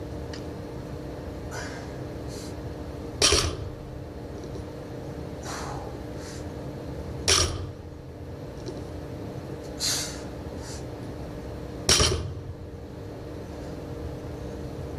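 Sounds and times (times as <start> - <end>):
low hum: 0.0 - 9.5
short sharp breaths: 1.5 - 2.6, 5.4 - 6.5, 9.8 - 10.9.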